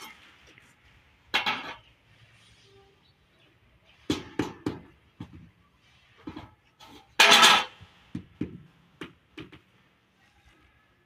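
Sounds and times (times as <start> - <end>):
tile scraping: 5.8 - 8.0.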